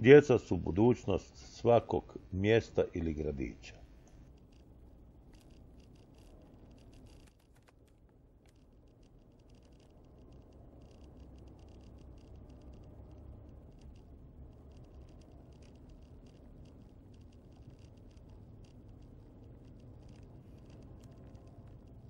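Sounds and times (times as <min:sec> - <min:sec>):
light rattling ticks: 0:05.3 - 0:22.0.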